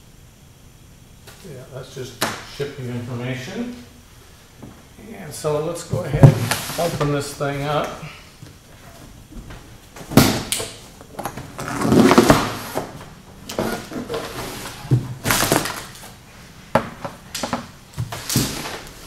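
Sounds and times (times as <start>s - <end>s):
cardboard scraping and rustling: 11.3s - 16.1s.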